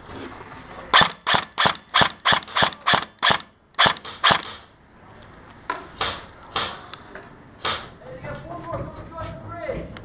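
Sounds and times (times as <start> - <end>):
airsoft rifle shots: 0.9 - 4.7.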